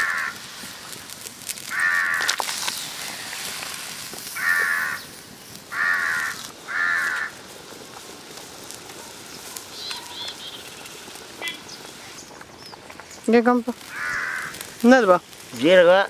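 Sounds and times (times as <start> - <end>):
crow cawing: 0.0 - 0.4, 1.7 - 2.4, 4.4 - 5.1, 5.7 - 7.4, 13.9 - 14.6
small bird chirping: 9.2 - 14.5.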